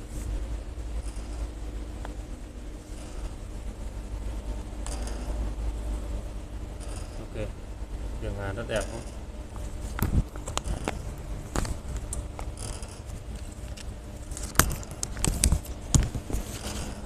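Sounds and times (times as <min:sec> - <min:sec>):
sharp clicks and knocks: 0:04.6 - 0:05.7, 0:08.6 - 0:17.0.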